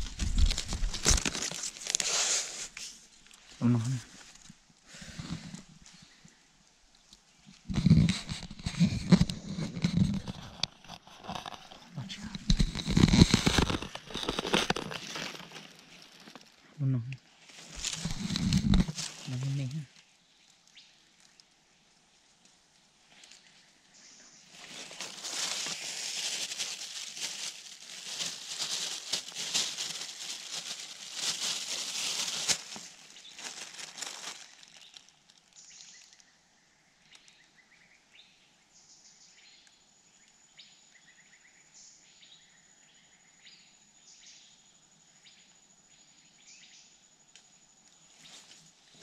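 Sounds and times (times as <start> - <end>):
handling crackling at microphone: 0.0 - 2.2, 7.6 - 16.5, 17.5 - 19.8, 24.6 - 35.0
faint bird chirps: 33.1 - 49.0.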